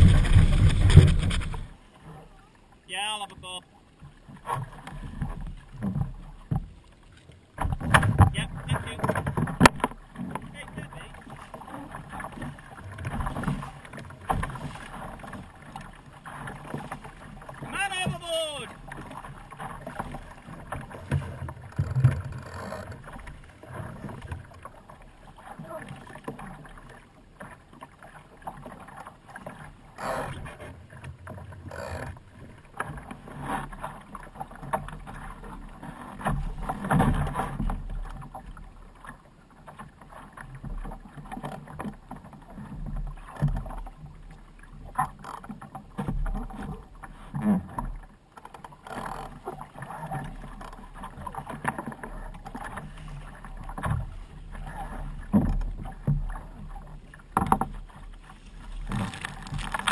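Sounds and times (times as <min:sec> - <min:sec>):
water slapping against boat hull: 0:00.0 - 0:02.3, 0:03.1 - 0:59.9.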